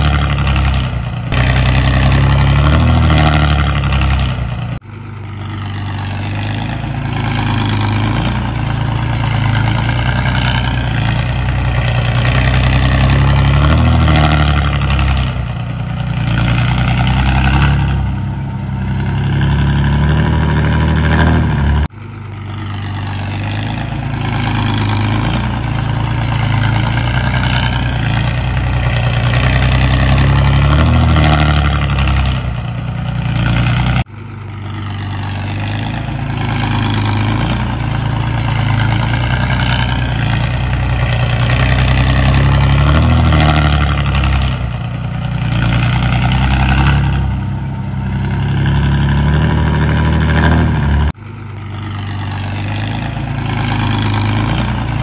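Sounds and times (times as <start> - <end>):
heavy diesel engine under load: 0.0 - 55.0.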